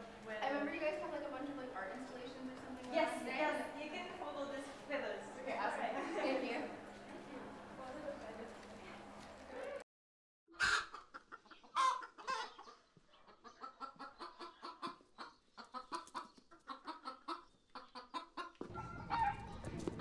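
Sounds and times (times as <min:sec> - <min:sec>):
chicken clucking: 0:10.5 - 0:19.9.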